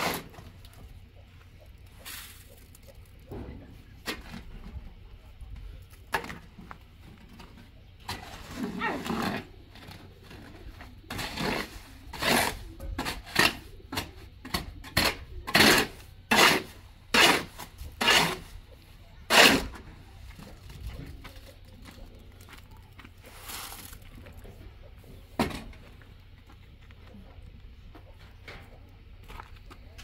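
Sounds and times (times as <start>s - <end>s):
shovel scraping wet mortar: 0.0s - 0.6s, 8.0s - 18.6s, 19.2s - 19.9s.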